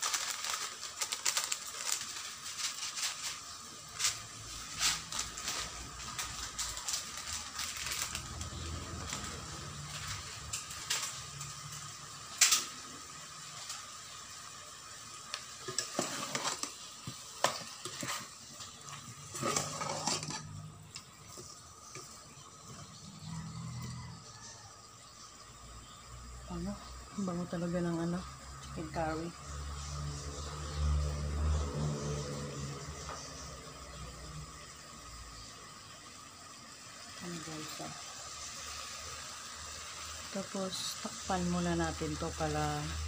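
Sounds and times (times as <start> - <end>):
chicken sizzling: 0.0 - 43.0
metal spoon scraping pot: 15.7 - 16.7, 19.2 - 20.7.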